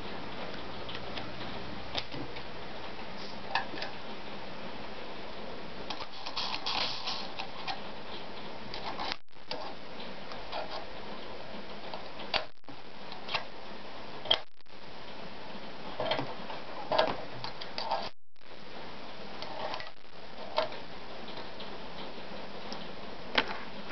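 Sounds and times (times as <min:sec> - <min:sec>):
steady hiss: 0:00.0 - 0:08.8.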